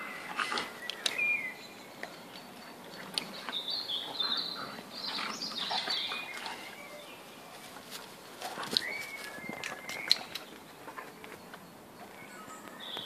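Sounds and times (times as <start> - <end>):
birds chirping: 0.0 - 13.0
dogs scuffling on grass: 5.0 - 11.5.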